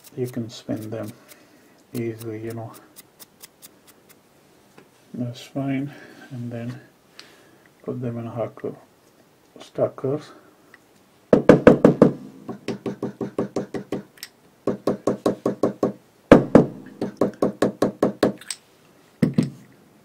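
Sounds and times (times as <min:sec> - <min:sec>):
metal tool knocking on bench: 0:11.4 - 0:14.0.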